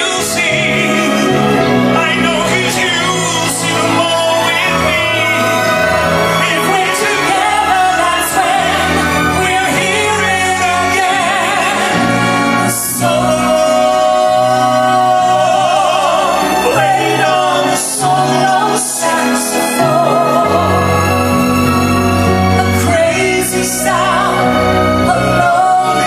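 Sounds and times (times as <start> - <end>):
man and woman singing duet: 0.0 - 26.0
orchestra playing: 0.0 - 26.0.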